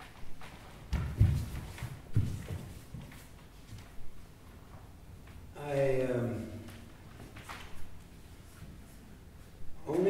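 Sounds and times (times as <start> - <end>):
bare feet thudding on dance floor: 0.8 - 3.1.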